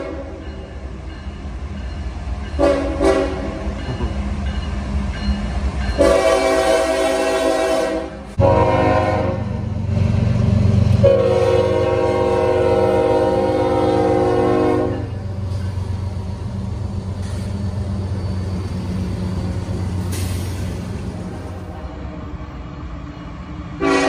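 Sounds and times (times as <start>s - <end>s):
locomotive air horn blasts: 0.0s - 0.4s, 2.6s - 3.6s, 6.0s - 9.5s, 11.0s - 15.2s, 23.8s - 24.0s
train rumbling: 0.0s - 24.0s.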